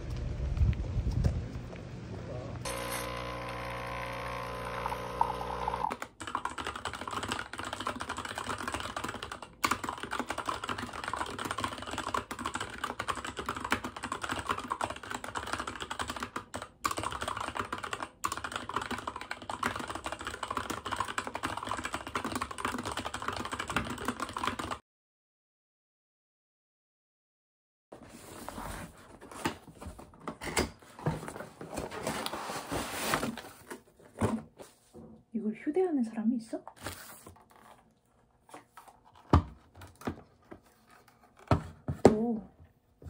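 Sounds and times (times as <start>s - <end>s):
coffee machine pump humming: 2.7s - 5.9s
typing on mechanical keyboard: 5.9s - 24.8s.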